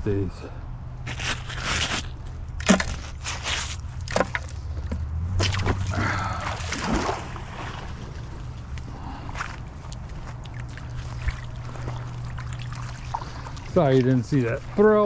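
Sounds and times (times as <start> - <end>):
gritty crunching scrapes: 1.0 - 5.8.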